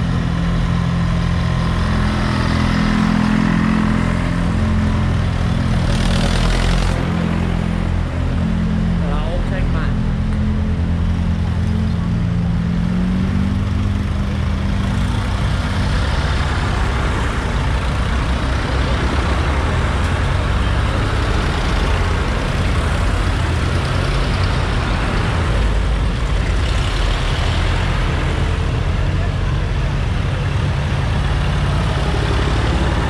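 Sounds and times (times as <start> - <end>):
tractor engines driving past: 0.0 - 33.0.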